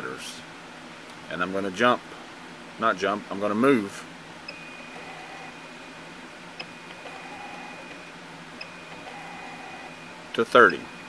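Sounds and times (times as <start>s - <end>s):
steady high motor whine: 4.5s - 11.0s.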